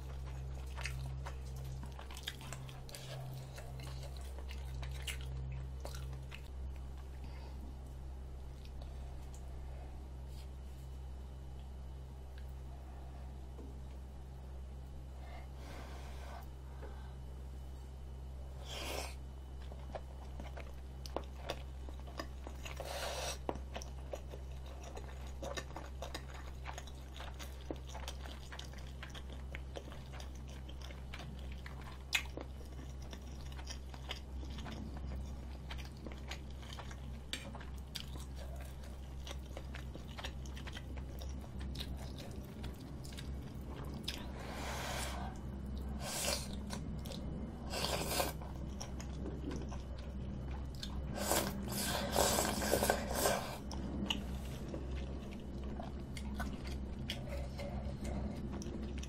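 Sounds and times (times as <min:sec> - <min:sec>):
close chewing with mouth clicks: 0:00.0 - 0:07.2, 0:19.6 - 0:44.6, 0:45.2 - 0:59.0.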